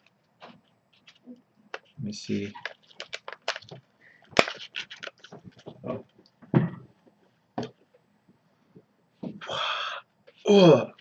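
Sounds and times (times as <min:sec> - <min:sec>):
plastic pack crinkling: 0:01.8 - 0:05.7
person breathing: 0:09.4 - 0:10.0.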